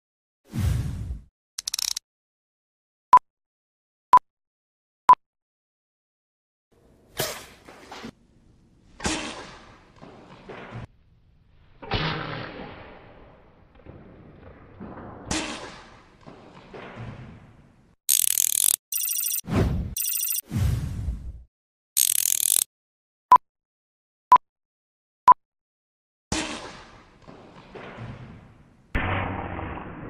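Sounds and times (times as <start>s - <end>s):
electronic countdown beeps: 18.9s - 19.4s, 20.0s - 20.4s.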